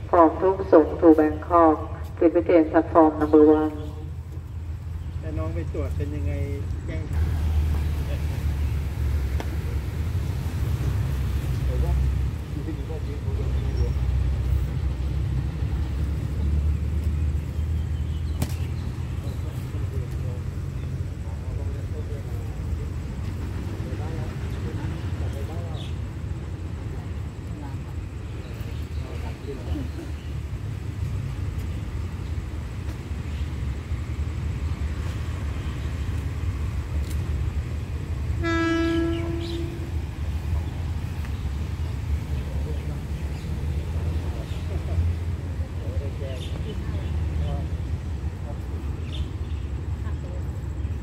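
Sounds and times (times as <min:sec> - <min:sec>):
train rumble: 0:00.0 - 0:51.0
locomotive horn blast: 0:38.3 - 0:40.2.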